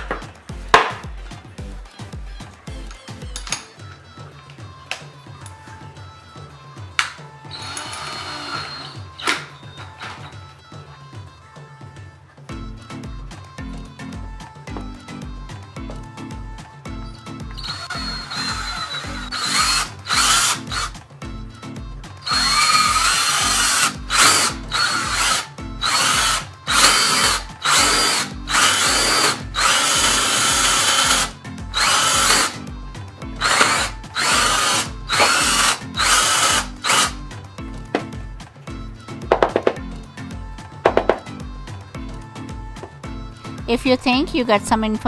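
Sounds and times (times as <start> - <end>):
background music with steady beat: 0.0 - 45.0
cordless drill boring wood: 7.5 - 10.2, 17.5 - 21.0, 22.2 - 32.7, 33.4 - 37.4.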